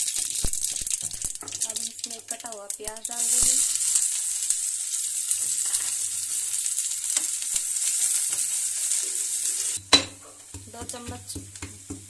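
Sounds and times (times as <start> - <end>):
onions sizzling in hot oil: 0.0 - 12.0
metal ladle striking pan: 9.8 - 12.0.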